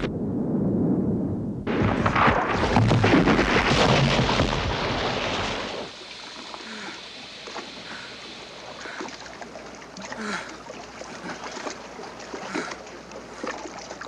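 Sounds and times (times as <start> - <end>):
rush of splashing water: 2.1 - 14.0
wash of sea water: 3.3 - 14.0.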